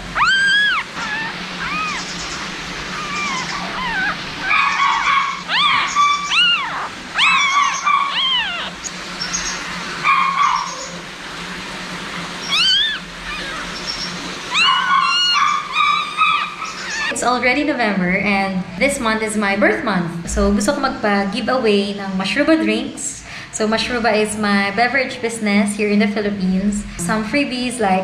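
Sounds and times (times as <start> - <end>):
puppy crying: 0.0 - 8.9, 12.4 - 17.1.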